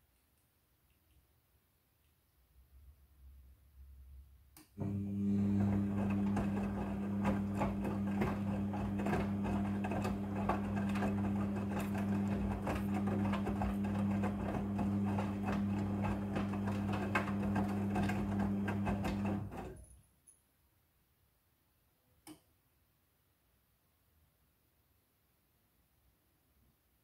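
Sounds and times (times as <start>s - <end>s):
washing machine motor humming: 4.8s - 19.8s.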